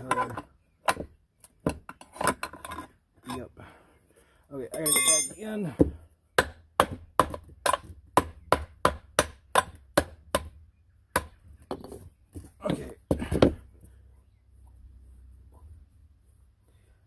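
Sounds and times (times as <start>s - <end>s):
knocks and scrapes: 11.6s - 14.0s.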